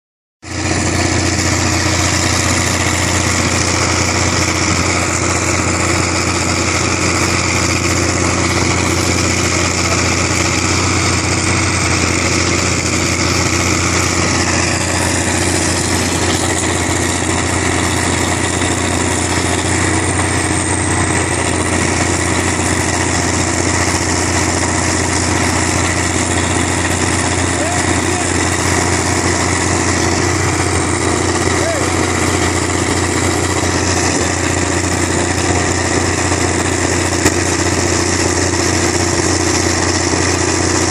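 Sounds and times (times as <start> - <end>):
bulldozer diesel engine idling: 0.4 - 40.9.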